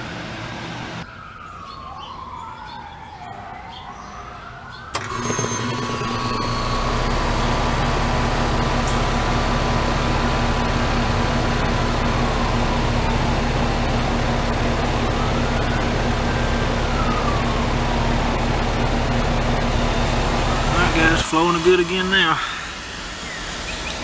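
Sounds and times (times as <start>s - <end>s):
wailing siren-like tone: 1.0s - 24.0s
heat pump compressor and fan humming: 5.0s - 24.0s.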